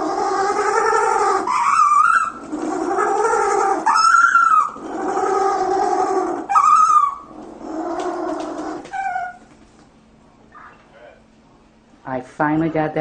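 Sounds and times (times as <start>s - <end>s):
penguin braying: 0.0s - 9.5s.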